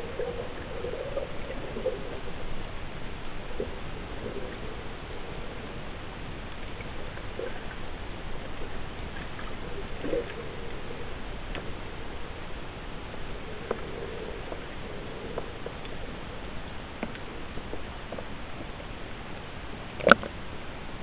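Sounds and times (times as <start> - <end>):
underwater hiss: 0.0 - 16.6
faint ticks and clicks: 0.1 - 20.4.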